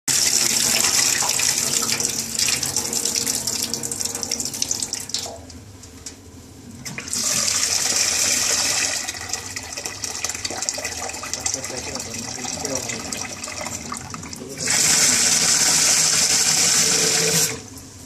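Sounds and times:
water pouring into a steel sink: 0.1s - 5.4s, 6.9s - 17.7s
tap running into a pan: 0.8s - 1.4s.

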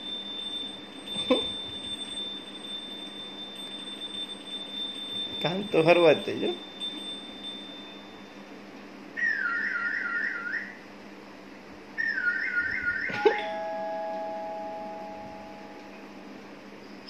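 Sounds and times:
two-note chime: 13.1s - 16.2s.

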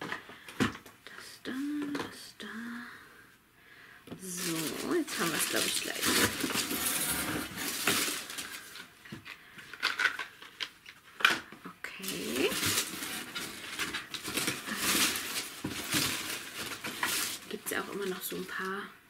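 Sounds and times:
paper and packaging rustling: 4.2s - 18.9s.

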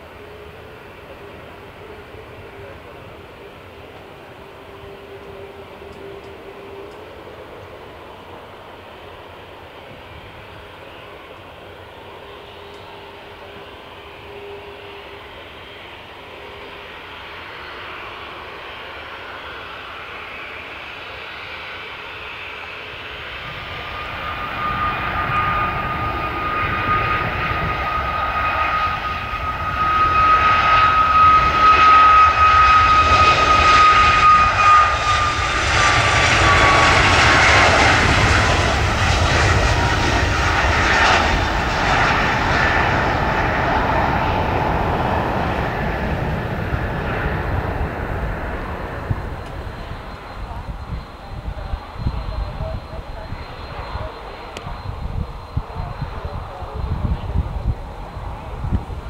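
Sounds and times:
jet airliner passing: 0.0s - 59.0s.

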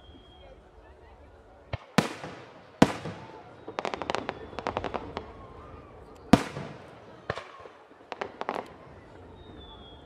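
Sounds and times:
firework cracks: 1.7s - 5.4s, 6.1s - 8.9s
loud firework bang: 1.8s - 5.4s.

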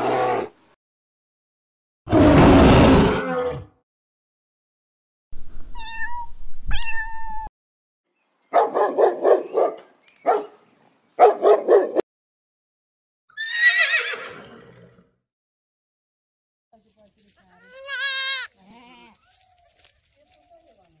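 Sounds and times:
cat meowing: 5.8s - 7.5s
dog barking: 8.5s - 10.6s, 11.2s - 12.0s
horse whinnying: 13.3s - 15.0s.

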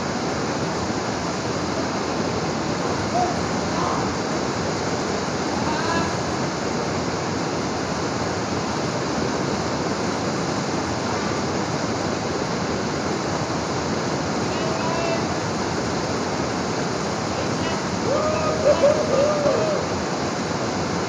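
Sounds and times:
waterfall roaring: 0.0s - 21.0s
distant voices calling out: 17.2s - 20.2s.

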